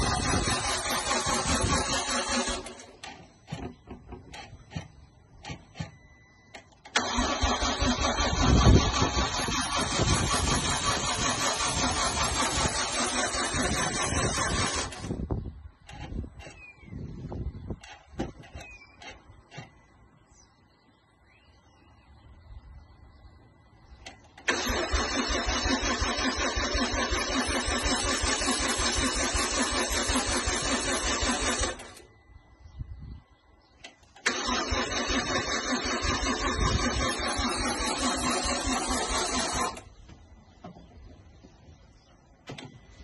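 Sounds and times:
engine cranking by starter motor: 0.0 - 19.8, 24.0 - 32.1, 33.8 - 40.2.

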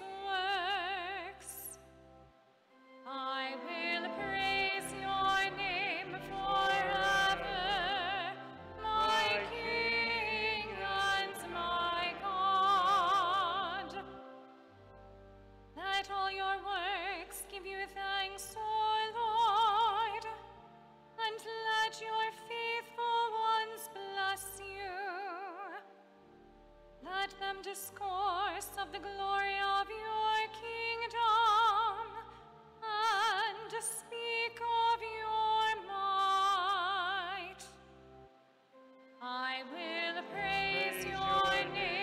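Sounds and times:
sustained accompaniment chords: 1.8 - 18.4, 38.9 - 42.0
woman singing with vibrato: 3.0 - 14.2, 39.2 - 42.0.

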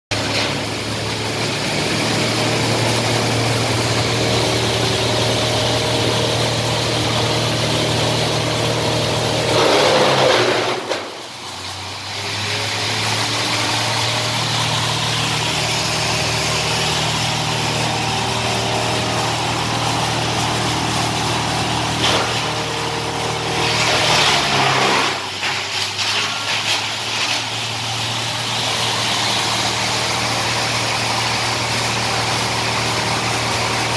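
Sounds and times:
wood crusher grinding wood: 0.1 - 33.9
wood crusher humming: 0.1 - 33.9.

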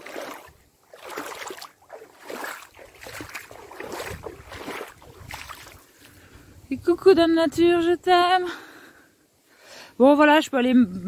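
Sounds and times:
feet splashing in puddle: 0.0 - 6.3.

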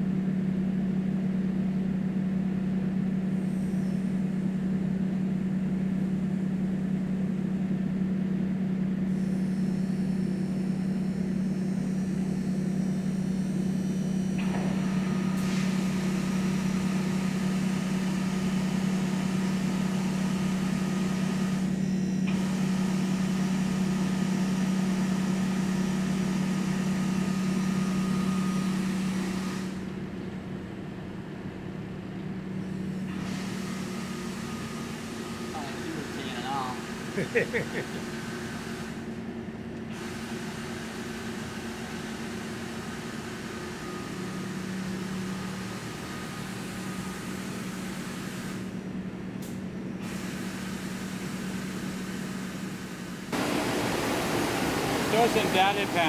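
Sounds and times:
grinder motor hum: 53.3 - 56.0
coolant spraying and hissing: 53.4 - 56.0.

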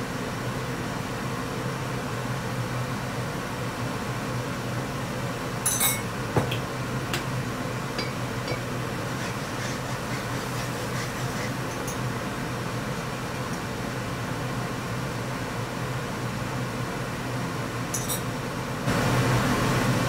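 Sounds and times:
steady background hum: 0.0 - 20.0
glass bottle clinking: 5.7 - 6.1, 17.9 - 18.2.

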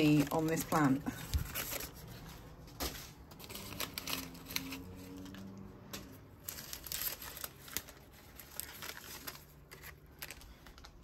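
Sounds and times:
paper crinkling and rustling: 0.0 - 11.0.

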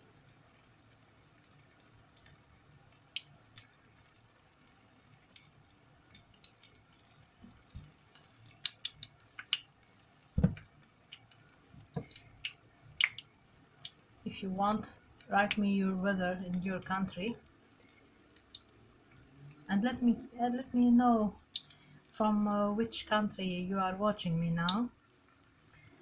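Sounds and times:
faint sizzle: 0.0 - 26.0
oil crackling and popping: 0.1 - 14.2, 14.9 - 19.7, 21.2 - 22.2, 24.1 - 26.0
soft knocks: 10.4 - 10.6.

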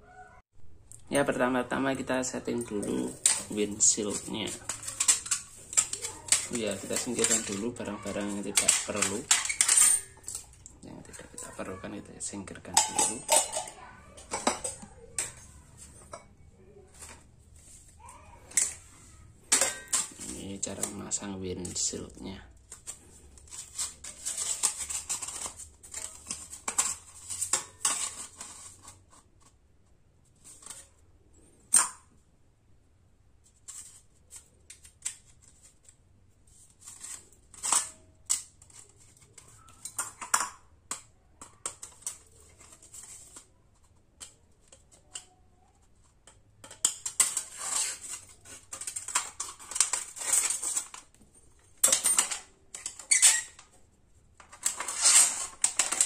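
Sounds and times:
sheet metal clicks and crinkles: 2.3 - 32.2, 33.4 - 56.0.

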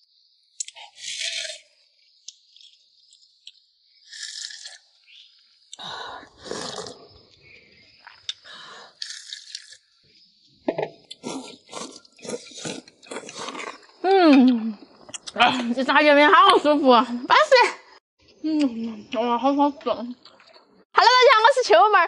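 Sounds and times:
person chewing noodles: 4.1 - 4.8, 6.3 - 7.0, 8.0 - 9.8, 11.1 - 15.4.

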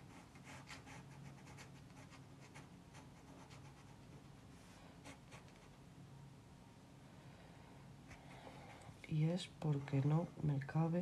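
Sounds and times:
pencil scratching on paper: 0.0 - 4.0
low steady hum: 0.0 - 11.0.

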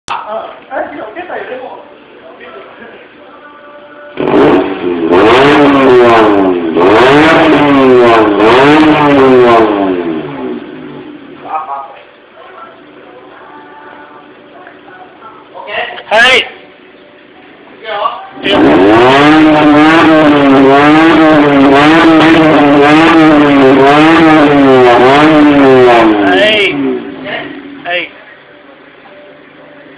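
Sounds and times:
car engine revving: 4.1 - 11.5, 18.3 - 28.9.

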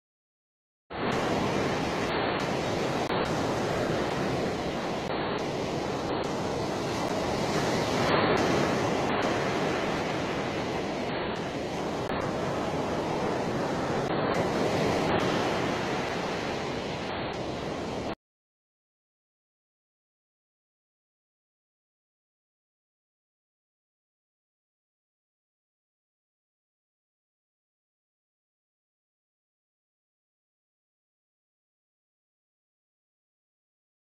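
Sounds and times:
surf rushing: 0.9 - 18.2
wind: 0.9 - 18.2.

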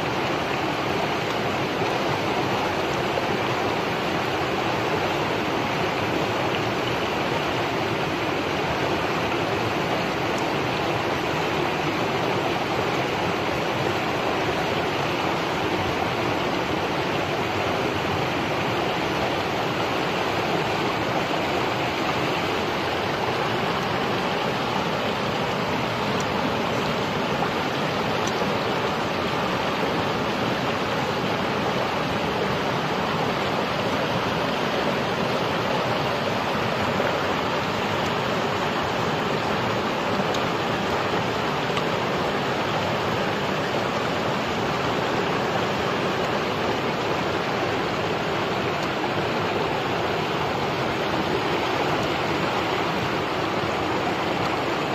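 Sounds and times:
stream water rushing: 0.0 - 54.9.

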